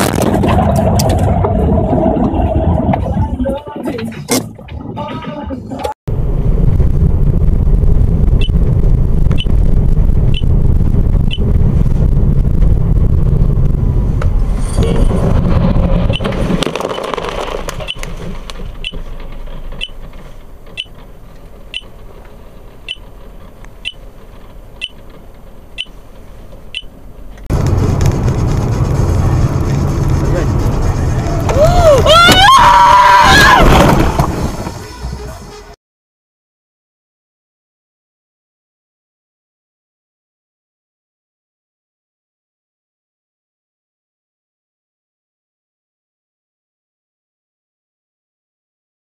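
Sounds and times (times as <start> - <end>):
car crash: 0.0 - 3.6, 6.3 - 22.6, 27.5 - 35.8
car road and engine noise: 0.0 - 35.8.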